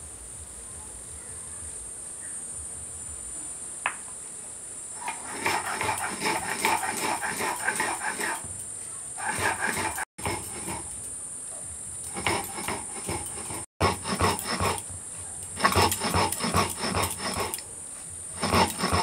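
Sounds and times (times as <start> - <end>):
steady high hiss: 0.0 - 19.0
grinding stone rasping over sugar: 5.0 - 8.6, 9.2 - 11.1, 12.0 - 19.0.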